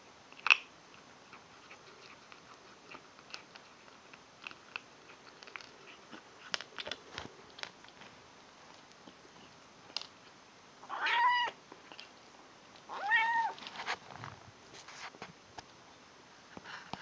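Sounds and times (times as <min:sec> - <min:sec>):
kitten crunching dry kibble: 0:00.3 - 0:10.4, 0:11.7 - 0:15.8.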